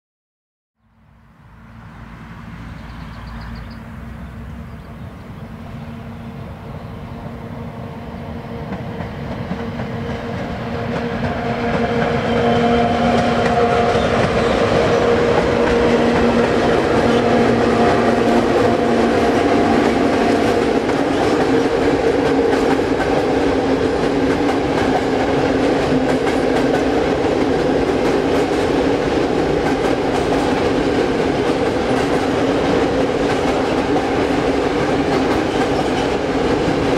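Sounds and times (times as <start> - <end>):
freight train rumbling past: 1.0 - 36.9
wheels clattering on rails: 8.7 - 36.9.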